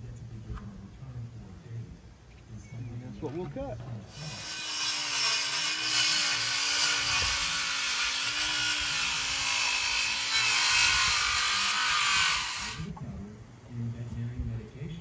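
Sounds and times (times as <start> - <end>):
circular saw cutting wood: 4.1 - 12.9.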